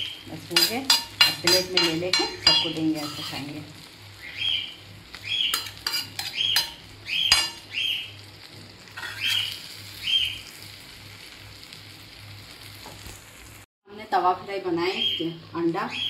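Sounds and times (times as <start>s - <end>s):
faint sizzle: 0.0s - 16.0s
metal utensil scraping iron pan: 0.5s - 3.6s, 5.5s - 7.7s, 9.0s - 9.6s.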